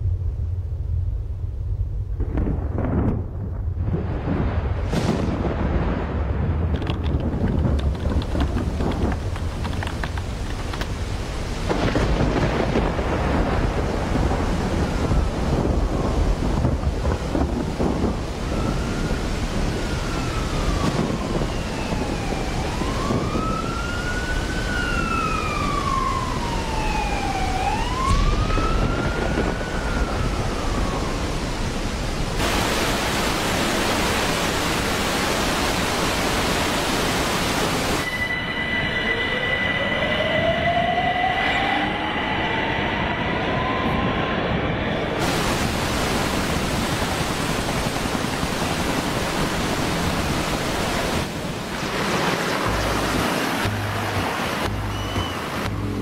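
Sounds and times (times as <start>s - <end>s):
low rumbling thunder: 0.0s - 35.0s, 42.9s - 54.8s
heavy rain: 2.2s - 38.7s, 43.6s - 56.0s
siren wailing: 17.5s - 35.0s, 37.2s - 45.4s, 49.2s - 56.0s
hiss of pouring water: 32.4s - 38.2s, 45.2s - 54.0s.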